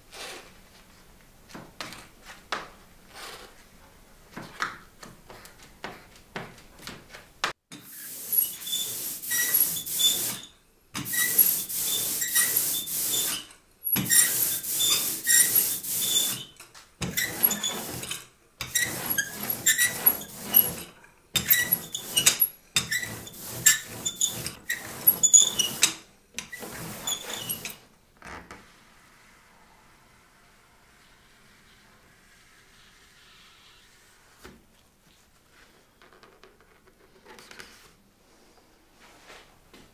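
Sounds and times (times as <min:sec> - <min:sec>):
sticky ink hissing strokes: 0:07.9 - 0:16.5.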